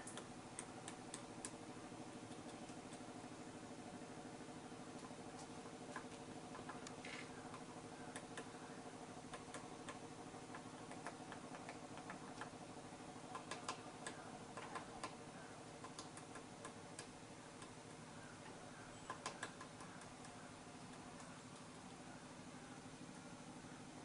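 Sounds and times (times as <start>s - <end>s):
woodpecker pecking on branch: 0.0s - 1.6s, 2.2s - 3.1s, 4.9s - 8.6s, 9.2s - 12.6s, 13.2s - 22.1s.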